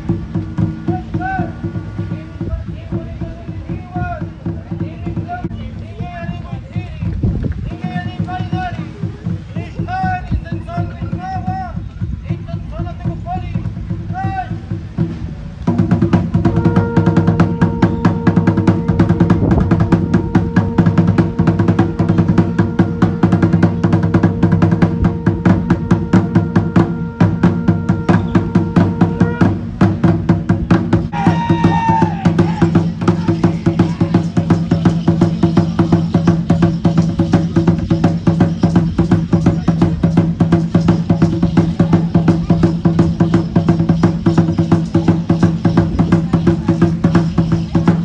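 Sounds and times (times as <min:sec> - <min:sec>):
fast drum beat: 0:00.0 - 0:48.0
held drone tone: 0:16.5 - 0:29.7.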